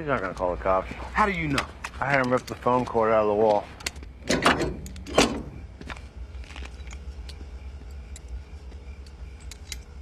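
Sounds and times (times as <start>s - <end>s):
nozzle and hose clicks and rattles: 1.3s - 5.6s.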